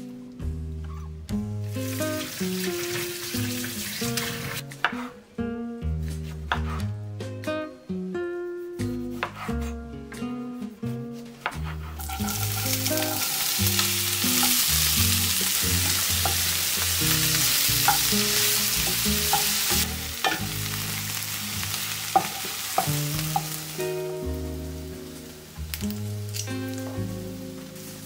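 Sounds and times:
onion sizzling in hot oil: 1.6 - 4.6, 11.9 - 28.0
spoon knocking against pan: 17.8 - 18.2, 18.8 - 20.5, 22.1 - 23.6.

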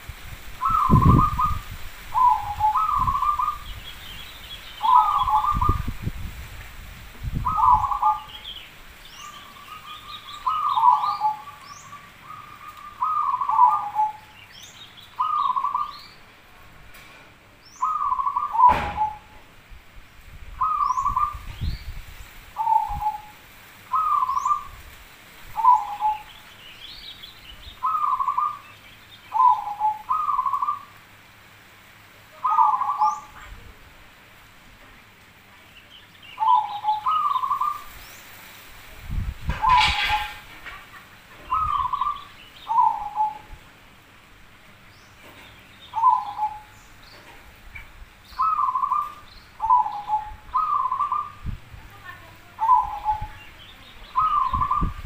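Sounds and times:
dove cooing: 0.6 - 3.8, 4.8 - 6.0, 7.4 - 8.4, 9.3 - 14.4, 15.2 - 15.9, 17.8 - 19.4, 20.6 - 21.5, 22.6 - 24.8, 25.6 - 26.3, 27.8 - 28.6, 29.3 - 30.9, 32.4 - 33.6, 36.4 - 37.9, 39.5 - 43.6, 45.9 - 46.8, 48.4 - 51.5, 52.5 - 55.0
high bird chirps: 2.2 - 5.9, 7.4 - 16.2, 17.7 - 19.3, 20.6 - 22.0, 25.6 - 30.9, 35.8 - 38.3, 39.5 - 40.5, 41.4 - 43.6, 45.0 - 47.2, 48.2 - 51.6, 52.6 - 55.0
sharp knock: 18.6 - 19.2.

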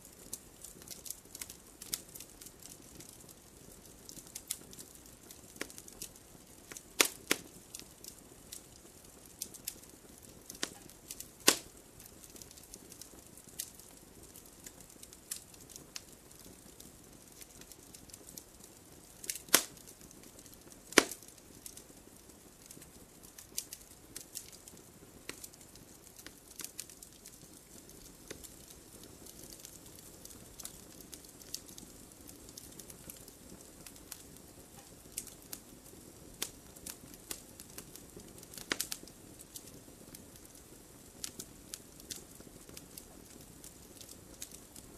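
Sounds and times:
campfire crackling: 0.0 - 44.9.

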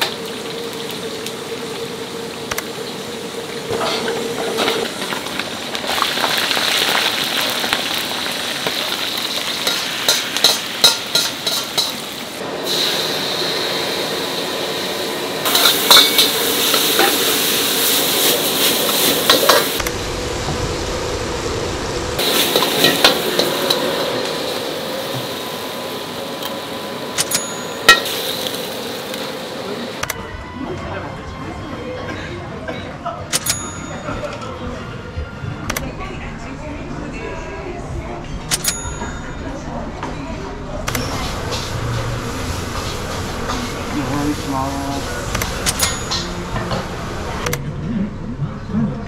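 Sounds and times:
food sizzling in a pan: 0.0 - 30.0, 41.0 - 47.4
metal utensils clinking on cookware: 9.3 - 12.1, 15.5 - 17.3, 18.2 - 19.8, 27.2 - 28.5, 45.4 - 46.9.

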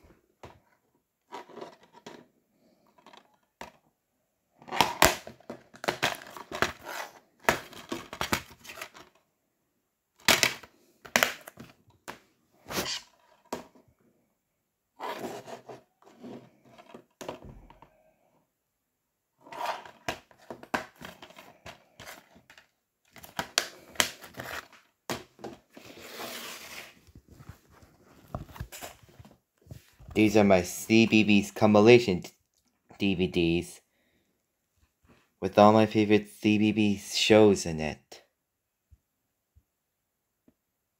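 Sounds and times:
plastic cases clicking and clattering: 4.6 - 9.2, 19.7 - 25.7
plastic case scraping on table: 15.0 - 17.1, 19.4 - 22.5, 25.4 - 27.0.

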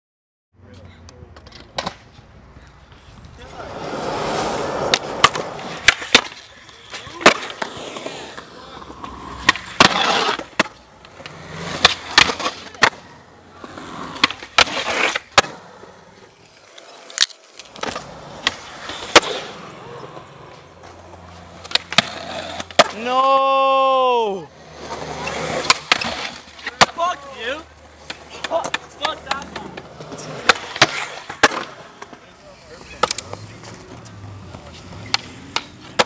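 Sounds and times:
skateboard wheels rolling on concrete: 0.6 - 36.0
skateboard pops and clacks: 1.3 - 2.1, 4.8 - 13.0, 14.1 - 15.7, 16.4 - 19.5, 20.8 - 23.1, 24.9 - 27.1, 28.0 - 32.2, 32.9 - 33.5, 34.2 - 36.0
skateboard trucks grinding on concrete: 1.4 - 36.0.

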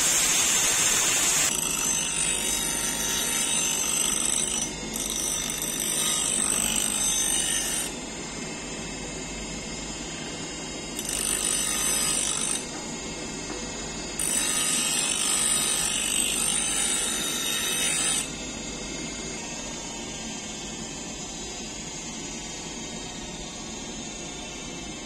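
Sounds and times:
bench grinder grinding steel: 0.0 - 8.0, 14.2 - 18.3.

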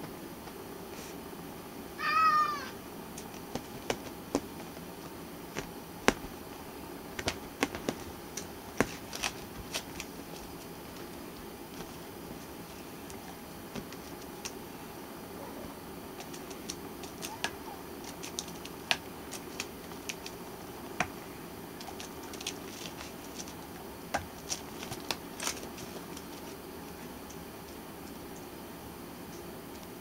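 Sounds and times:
steady low hum: 0.0 - 30.0
kitten clawing a cushion: 3.3 - 11.0.

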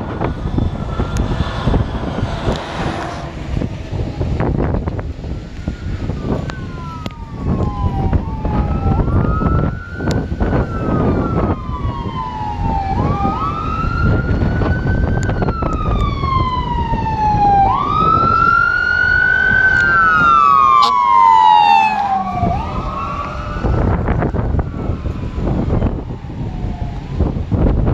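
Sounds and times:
fire truck wail siren: 0.0 - 27.9
low rumble of traffic: 0.0 - 27.9.

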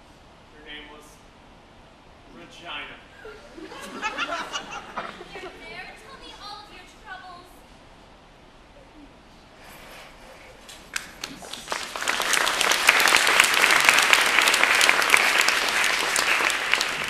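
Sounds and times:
audience applauding: 10.7 - 17.0.

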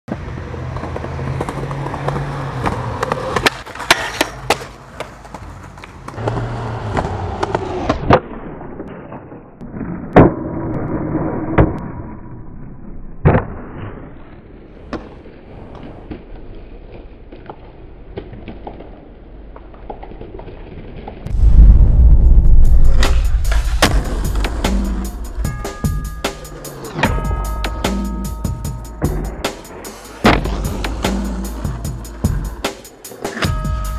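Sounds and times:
skateboard wheels rolling on concrete: 0.1 - 33.9
skateboard landing impacts: 0.8 - 8.3
skateboard scraping metal handrail: 1.4 - 7.9, 29.1 - 32.3.

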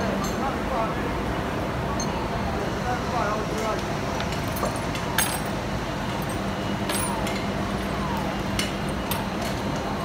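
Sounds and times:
steady low hum: 0.0 - 10.0
sharp metallic clinks: 4.4 - 5.6, 6.2 - 7.5.

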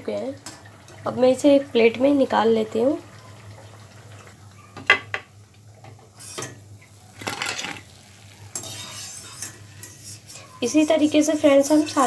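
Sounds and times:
spoon scraping pan: 6.2 - 12.0.

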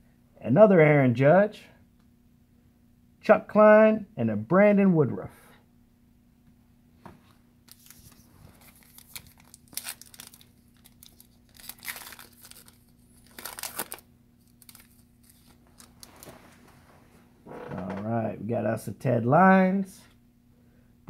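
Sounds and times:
faint steady hum: 0.0 - 21.0
plastic wrapper tearing and crinkling: 7.7 - 16.4.

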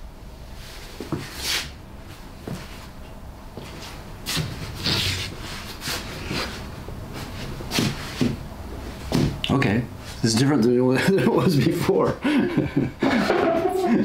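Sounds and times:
rubbing and scuffing: 0.6 - 3.0, 3.6 - 9.4.

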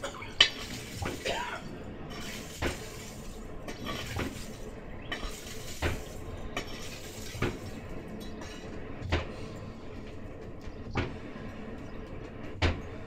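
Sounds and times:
forge rushing noise: 0.0 - 13.0.

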